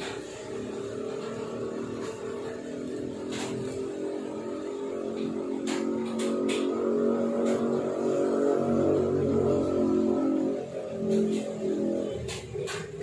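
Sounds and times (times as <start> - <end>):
motor humming: 0.0 - 13.0.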